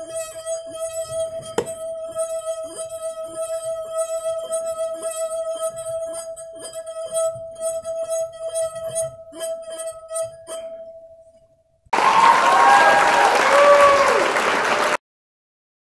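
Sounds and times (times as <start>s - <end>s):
finger rubbing glass rim: 0.0s - 10.8s.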